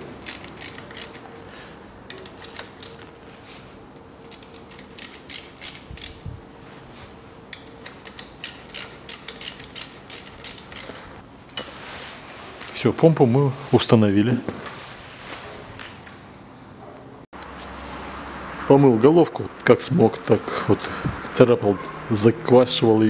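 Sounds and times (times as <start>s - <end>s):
ratchet wrench clicking: 0.2s - 1.2s, 4.4s - 6.2s, 7.5s - 11.0s.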